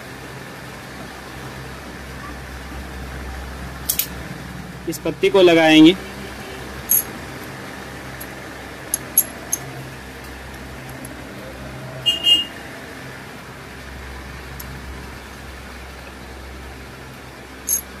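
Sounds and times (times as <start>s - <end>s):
steady low hum: 0.0s - 18.0s
metal clink with ring: 6.8s - 7.2s, 8.2s - 9.7s, 17.7s - 18.0s.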